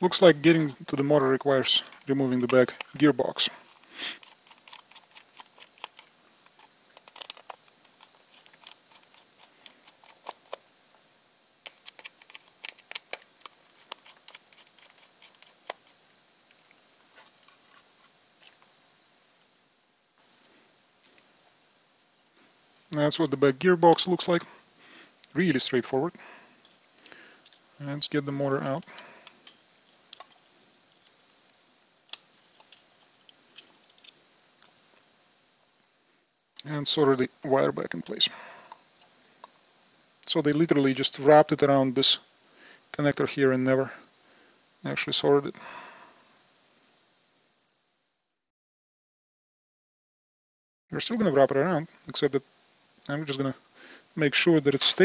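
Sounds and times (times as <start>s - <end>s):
plastic parts clicking: 4.2s - 10.6s, 11.6s - 15.8s.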